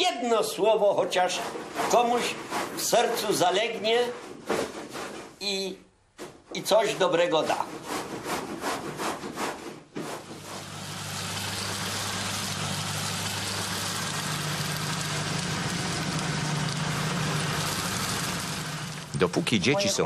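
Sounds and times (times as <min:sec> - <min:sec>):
grinding hiss: 0:10.2 - 0:19.2
grain mill motor hum: 0:10.2 - 0:19.3.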